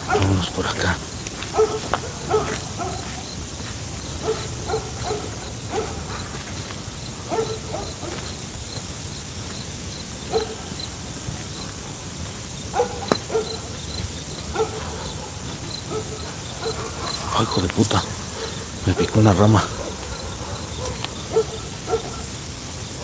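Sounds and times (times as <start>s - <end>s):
cricket chirping: 0.0s - 23.0s
distant dogs barking: 0.0s - 23.0s.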